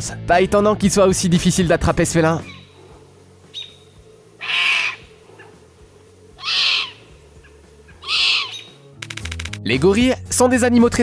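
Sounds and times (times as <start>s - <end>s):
kitten mewing: 6.4s - 7.0s.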